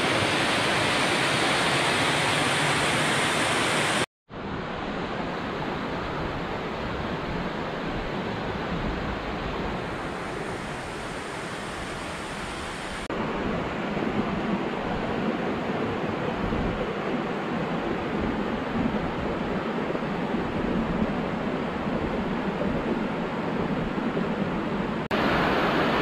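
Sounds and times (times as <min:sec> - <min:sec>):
stream rushing over rocks: 0:00.0 - 0:04.1, 0:25.1 - 0:26.0.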